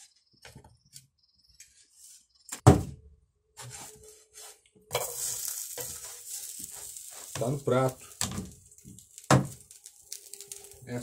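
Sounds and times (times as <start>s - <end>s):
frying pan sizzling: 4.9s - 11.0s.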